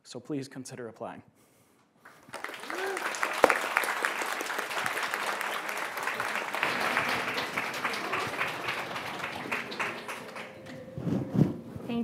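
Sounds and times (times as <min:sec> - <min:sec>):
audience applauding: 0:02.1 - 0:10.8.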